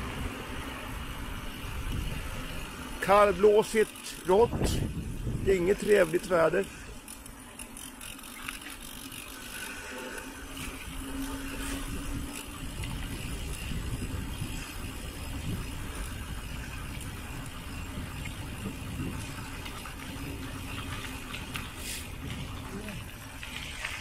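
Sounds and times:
wind rumbling on microphone: 0.0 - 3.6, 4.2 - 7.4, 8.9 - 24.0
bike tyres rolling and rattling: 0.0 - 24.0.

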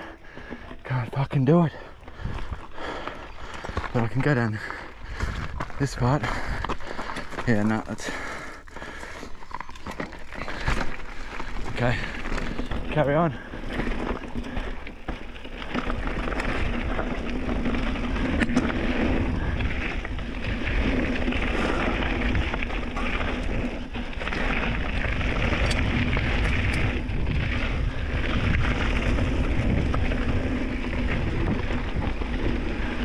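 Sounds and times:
tyre and wind rush: 2.1 - 8.1, 15.4 - 33.0
bike knocking over rocks: 8.7 - 33.0.

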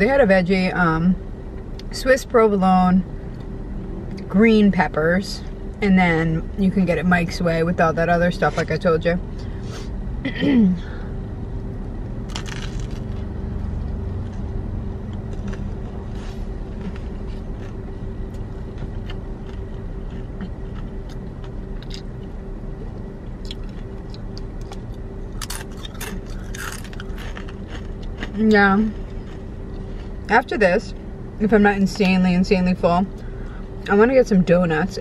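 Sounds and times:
low steady hum: 0.0 - 35.0
person chewing crunchy sandwich: 12.3 - 30.3.

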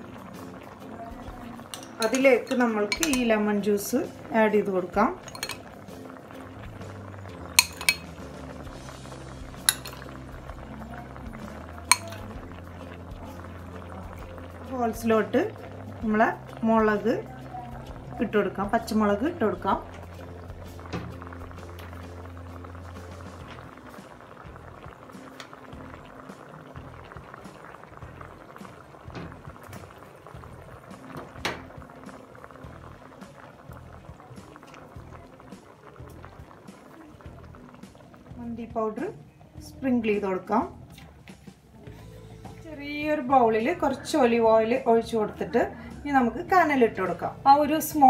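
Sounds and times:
liquid bubbling in a pot: 0.0 - 48.0
metal spoon clinking on pot: 1.7 - 3.4, 5.2 - 5.7, 7.6 - 8.1, 9.7 - 10.1, 11.9 - 12.3.

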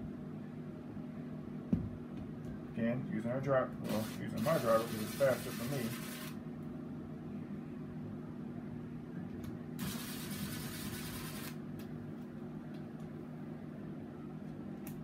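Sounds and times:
cordless drill motor running: 3.9 - 6.4.

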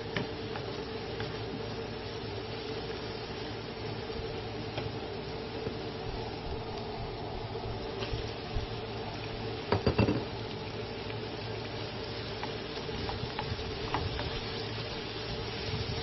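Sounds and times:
steady hum: 0.0 - 16.0
vegetables sizzling in pan: 0.0 - 16.0.

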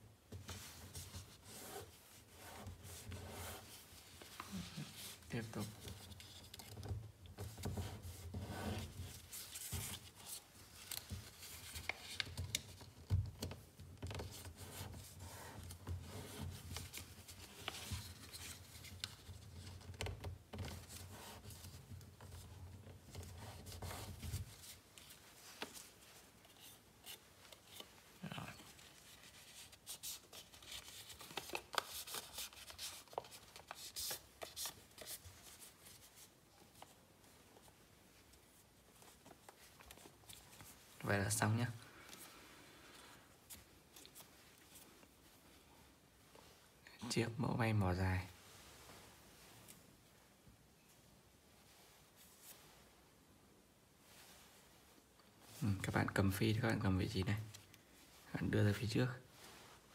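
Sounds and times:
paper rustling and crinkling: 0.4 - 45.3.

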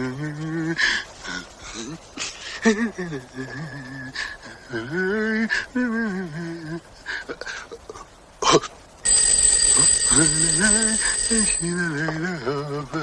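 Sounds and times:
electric doorbell ringing: 9.1 - 11.9.

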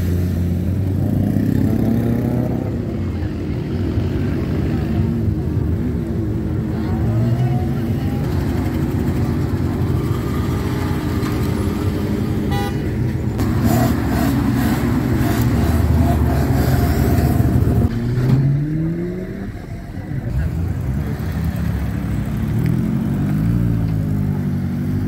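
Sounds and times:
truck engines driving past: 0.0 - 25.0
horn toot: 12.4 - 13.0
engine revving: 13.4 - 19.6.

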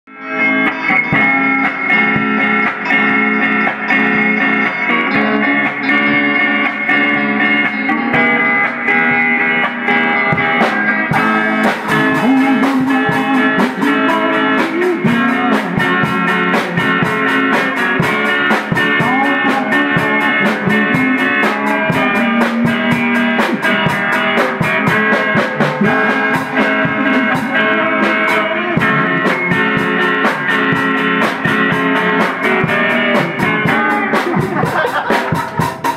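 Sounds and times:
electric guitars through amplifier: 0.1 - 35.9
drum kit playing: 0.2 - 35.9.

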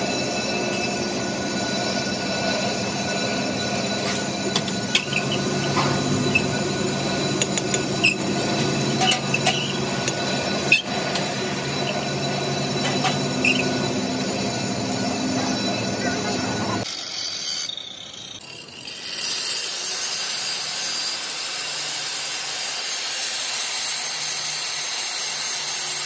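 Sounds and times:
steady machine hum: 0.0 - 16.8.

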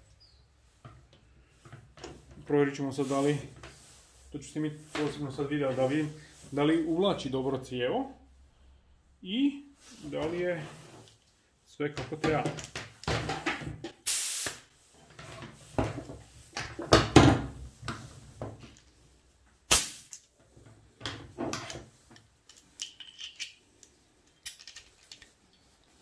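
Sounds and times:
hose fittings rustling and knocking: 0.1 - 6.8, 9.9 - 14.0, 14.9 - 26.0
short air hiss: 14.0 - 14.7, 19.7 - 20.1.

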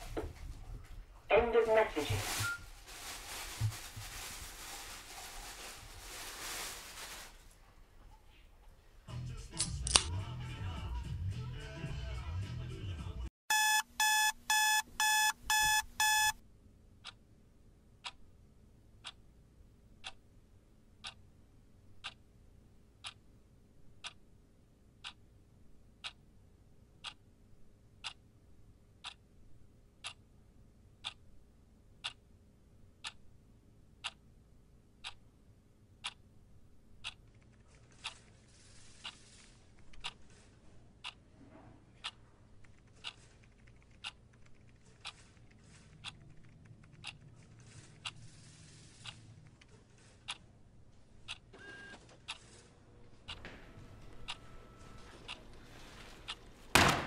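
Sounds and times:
alarm clock beeping: 13.5 - 16.4
clock ticking: 13.5 - 16.4, 20.0 - 20.2, 21.0 - 21.2, 22.0 - 22.2, 23.0 - 23.2, 24.0 - 24.2, 25.0 - 25.2, 26.0 - 26.2, 27.0 - 27.2, 28.0 - 28.2, 29.0 - 29.3, 30.0 - 30.2, 31.0 - 31.2, 32.0 - 32.2, 33.0 - 33.2, 34.0 - 34.2, 35.0 - 35.2, 36.0 - 36.2, 37.0 - 37.4, 39.9 - 40.2, 42.0 - 47.4, 54.2 - 56.5.

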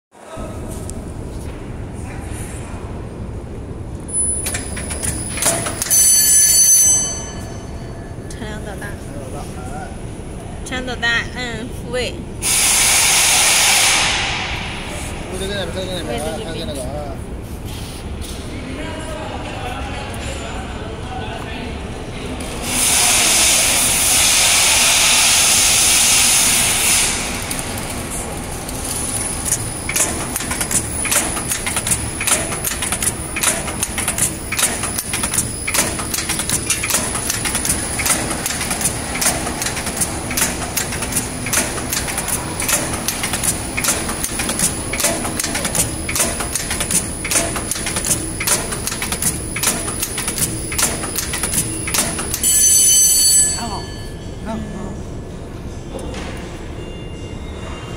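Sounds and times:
machine clicking and clacking: 4.2 - 6.0, 26.0 - 52.7
loud hiss: 12.4 - 15.0, 22.6 - 27.4.

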